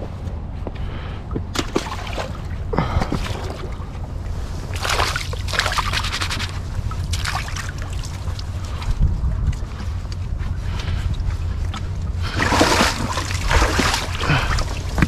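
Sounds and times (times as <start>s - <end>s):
wind rumble on microphone: 0.0s - 15.0s
hands splashing through seawater: 4.7s - 8.2s, 12.3s - 15.0s.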